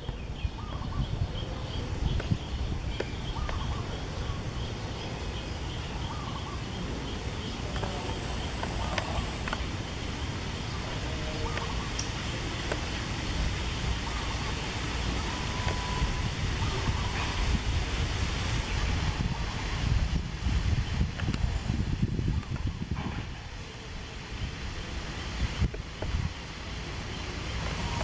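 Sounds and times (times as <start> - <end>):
steady low rumble: 0.0 - 28.0.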